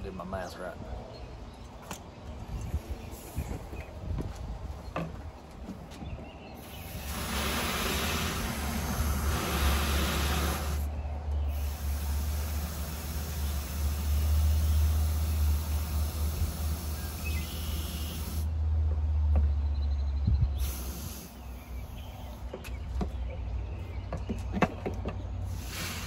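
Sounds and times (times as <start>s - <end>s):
water hissing into tank: 6.6s - 10.9s, 11.5s - 18.5s, 25.5s - 26.0s.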